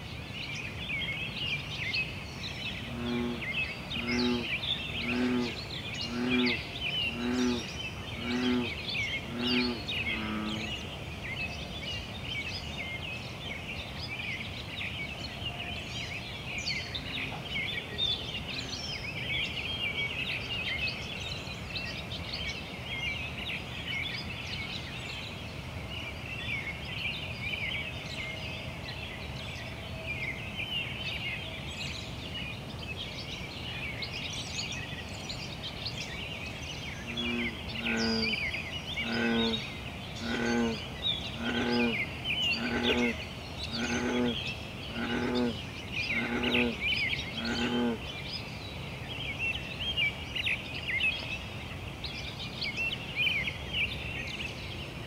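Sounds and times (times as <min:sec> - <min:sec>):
frog low croaks: 0:02.8 - 0:10.7, 0:37.0 - 0:48.0
frogs chirping: 0:37.1 - 0:48.1.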